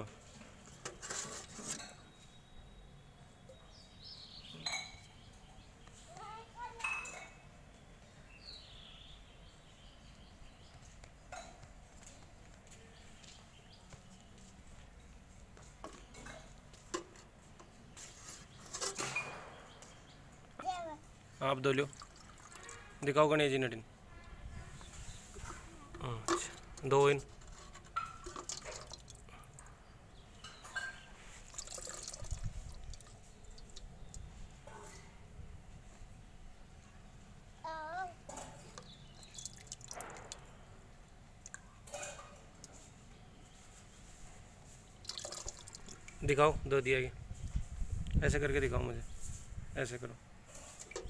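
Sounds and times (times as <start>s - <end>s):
liquid pouring and dripping: 21.8s - 23.0s, 28.0s - 29.6s, 31.3s - 34.3s, 38.8s - 40.6s, 44.8s - 46.3s.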